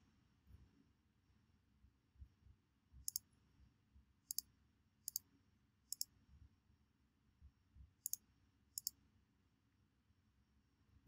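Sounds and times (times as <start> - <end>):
computer mouse clicks: 3.0 - 3.2, 4.3 - 4.5, 5.9 - 6.1, 8.8 - 9.0.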